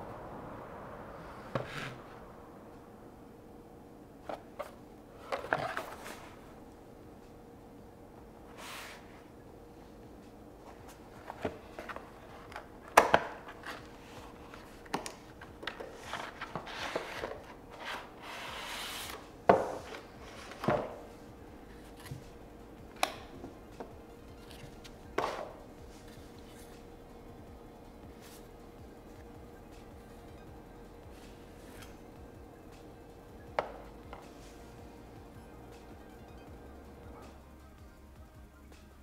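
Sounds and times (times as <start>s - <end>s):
faint steady hum: 0.0s - 39.0s
cardboard sliding rub: 1.5s - 2.2s, 8.5s - 9.2s, 16.0s - 19.2s.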